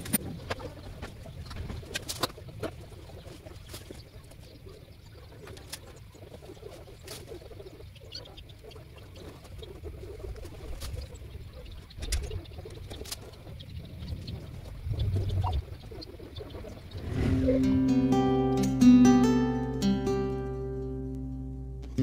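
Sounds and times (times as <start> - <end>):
faint bird chirps: 3.0 - 17.7
low rumble: 16.7 - 18.6.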